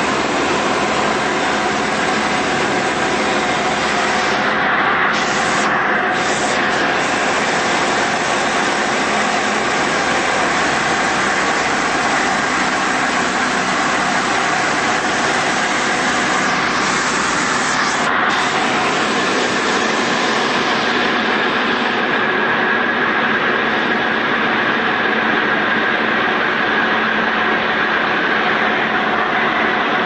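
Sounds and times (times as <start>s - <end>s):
airflow noise: 0.0s - 22.4s.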